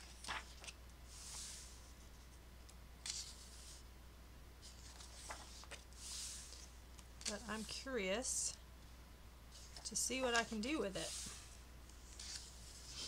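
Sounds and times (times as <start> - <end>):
light ticks of paper and fingers: 0.0 - 0.8
paper page swishing: 0.0 - 1.8, 4.6 - 7.8, 9.5 - 13.0.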